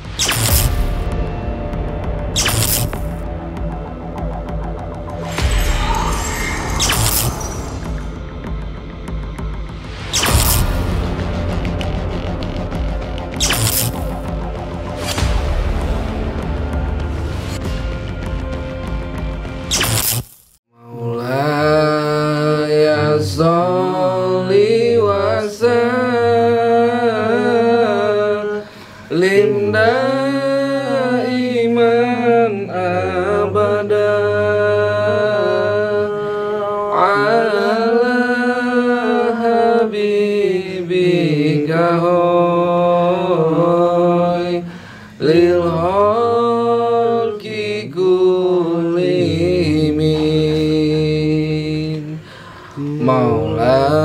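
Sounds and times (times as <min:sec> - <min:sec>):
steady low accompaniment: 0:00.0 - 0:19.7
person chanting ornamented lines: 0:05.2 - 0:08.2, 0:20.8 - 0:44.6, 0:52.8 - 0:54.0.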